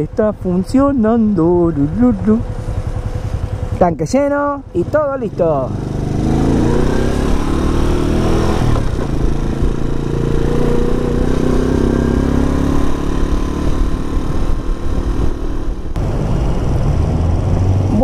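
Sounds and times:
motorcycle engine running: 0.0s - 18.0s
wind rumble on microphone: 5.8s - 18.0s.

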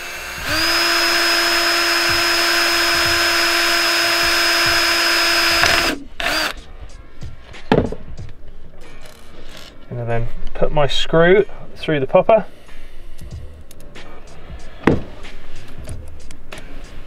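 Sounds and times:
electric drill drilling metal: 0.0s - 6.6s
knock: 7.7s - 8.0s, 14.8s - 15.2s.

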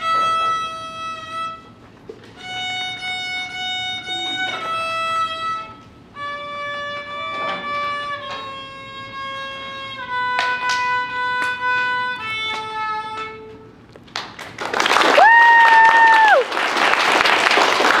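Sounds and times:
violin notes: 0.0s - 13.9s
audience applause: 14.1s - 18.0s
high cheer: 14.6s - 18.0s.

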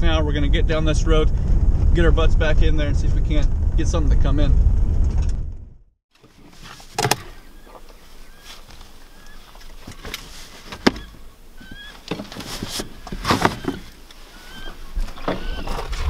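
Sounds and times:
faint rising bird chirps: 7.2s - 9.8s, 10.9s - 12.1s, 12.9s - 15.9s.

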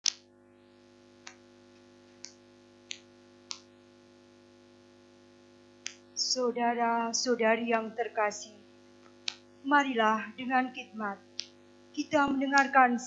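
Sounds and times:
faint steady hum: 0.1s - 13.0s
short sharp clicks: 5.8s - 6.0s, 9.0s - 9.5s, 11.3s - 11.6s.

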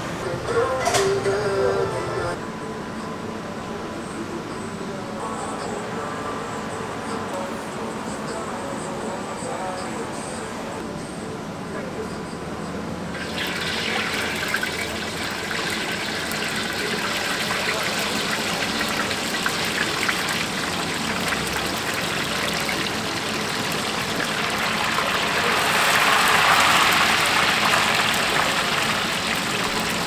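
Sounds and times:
tofu deep-frying in hot oil: 13.2s - 30.0s.

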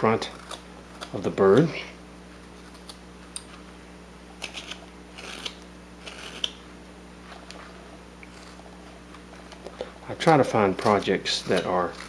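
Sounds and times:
knife scraping wood: 0.0s - 1.8s, 4.4s - 6.6s, 7.2s - 12.0s.

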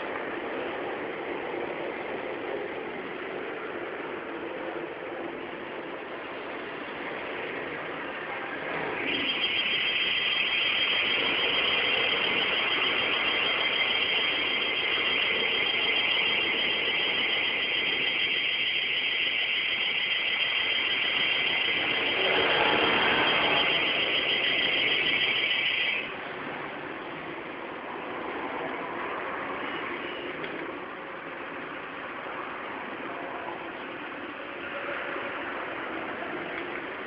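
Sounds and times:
shrill electronic alarm buzzing: 9.0s - 26.2s.

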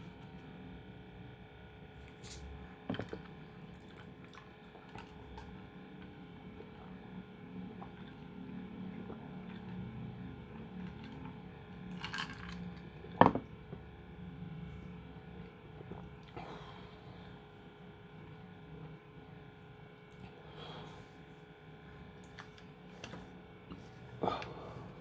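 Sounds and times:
steady low hum: 0.0s - 25.0s
cup set down with a knock: 13.2s - 13.5s.

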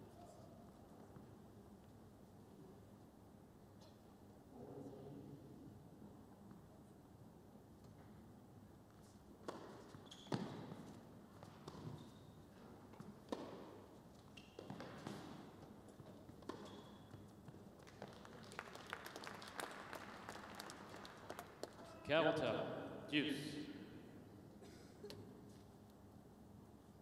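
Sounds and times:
shoe squeaks on court: 9.5s - 10.9s, 11.7s - 12.5s, 14.2s - 15.3s, 16.0s - 17.3s
people clapping: 17.7s - 22.0s.

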